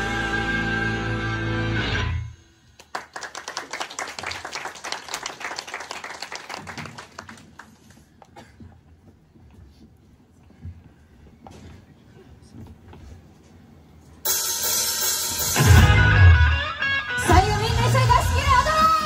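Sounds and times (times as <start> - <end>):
audience clapping: 2.8 - 8.3
pop song backing track: 15.6 - 19.0.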